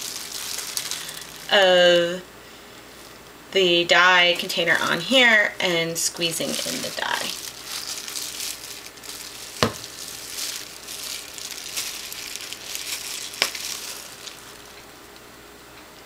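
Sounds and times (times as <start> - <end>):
plastic wrap crinkling: 0.0 - 1.6, 4.4 - 15.3.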